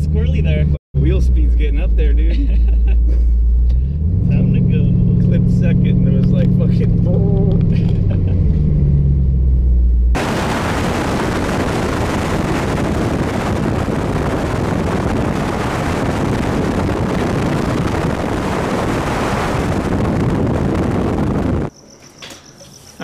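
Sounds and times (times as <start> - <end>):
wind rushing over microphone: 10.1 - 21.7.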